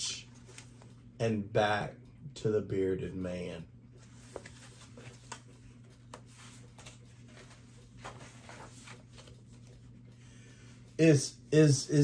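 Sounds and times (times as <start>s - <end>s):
book pages rustling: 0.4s - 1.0s, 4.0s - 10.2s.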